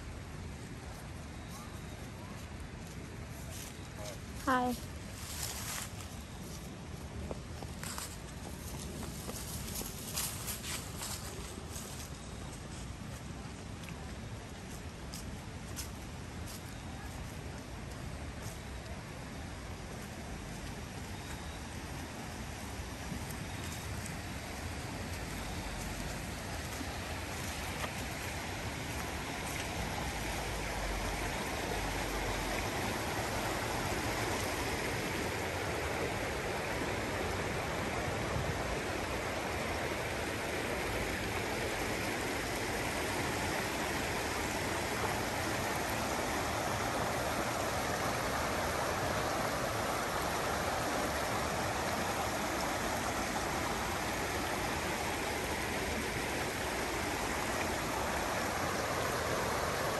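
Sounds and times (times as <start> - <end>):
running water rushing: 19.1 - 59.9.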